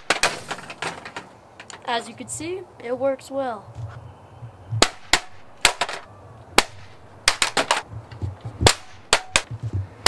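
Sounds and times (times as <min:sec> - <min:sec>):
sharp knocks and cracks: 0:00.0 - 0:01.8, 0:04.8 - 0:10.0.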